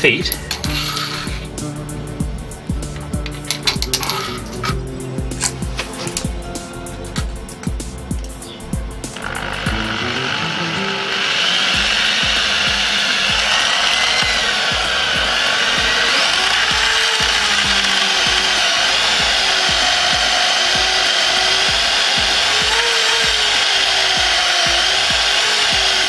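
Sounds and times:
electric drill whining through metal: 0.0 - 6.3, 9.0 - 26.0.

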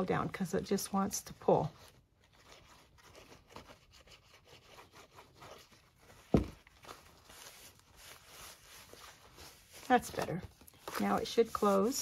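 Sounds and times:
paper rustling and rubbing: 0.8 - 12.0
thump: 6.3 - 6.6.

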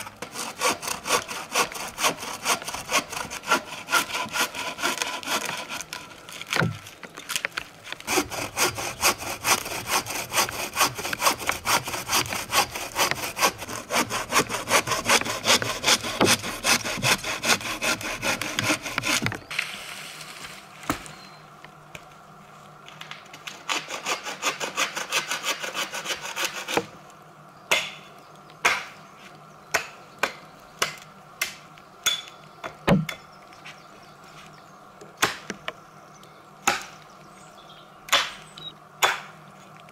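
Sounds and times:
hand saw cutting log: 0.0 - 6.8, 8.0 - 19.5, 23.6 - 26.9
hatchet pounding wooden stake: 8.2 - 19.4.

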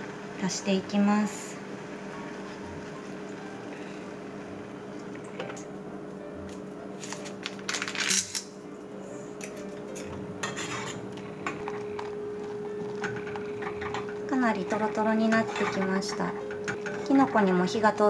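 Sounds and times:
metal spoon scraping saucepan: 10.4 - 11.0, 15.2 - 17.2.

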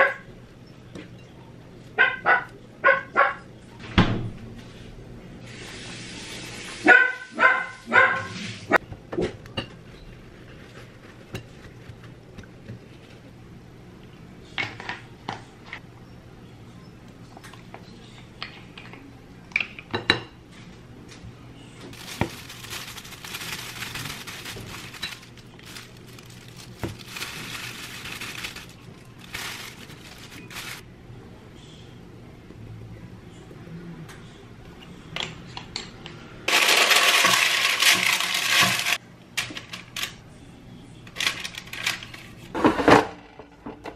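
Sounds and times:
dog barking: 2.0 - 3.5, 6.8 - 8.4
rustling: 21.9 - 30.8.

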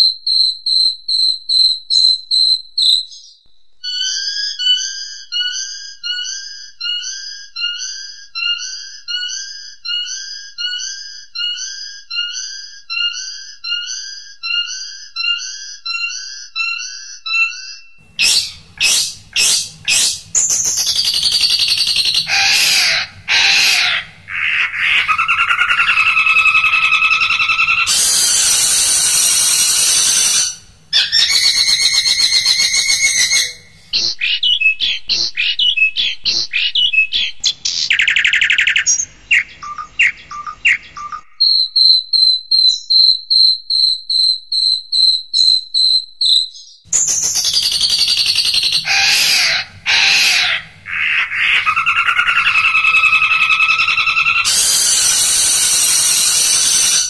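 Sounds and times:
high chirps: 0.0 - 57.0
shrike singing varied song: 18.0 - 57.0.

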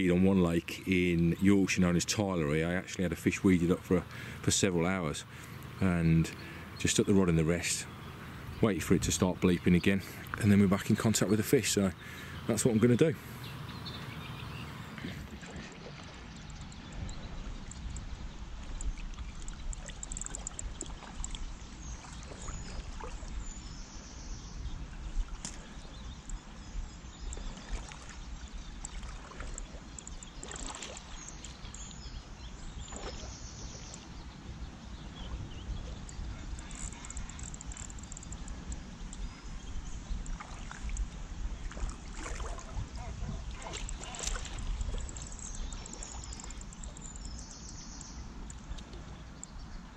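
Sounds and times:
lapping rippling water: 0.0 - 49.9
wind buffeting microphone: 8.3 - 33.3, 34.2 - 48.5
small clicks: 18.7 - 21.4, 36.0 - 39.3.

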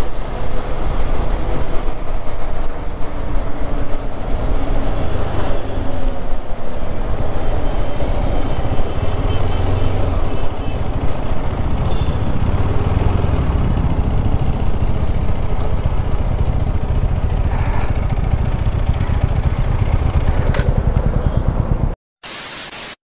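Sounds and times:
motorcycle engine running: 0.2 - 22.0
static hiss: 22.2 - 23.0.

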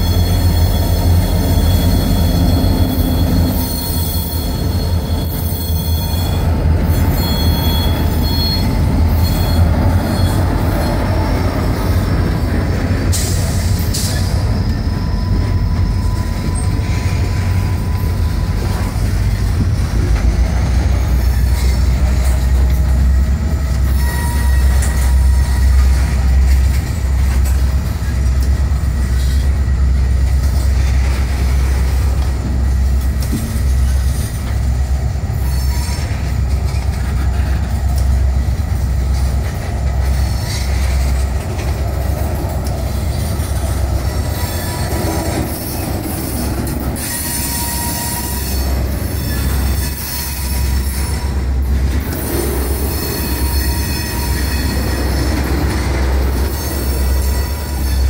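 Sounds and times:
wheel squeal: 0.0 - 19.1, 23.7 - 26.0, 43.0 - 58.0
freight train wheels rumbling on rail: 0.0 - 58.0.

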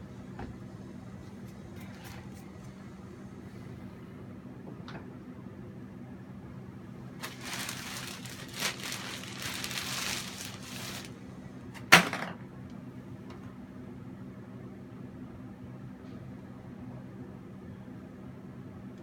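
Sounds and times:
rustling or scraping noise: 7.2 - 11.2.

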